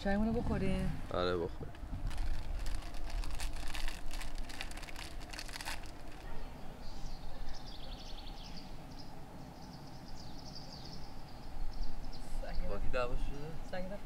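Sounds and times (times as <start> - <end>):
low outdoor rumble: 0.0 - 14.0
crackling rustle: 1.4 - 6.6
small birds chirping: 5.9 - 13.6.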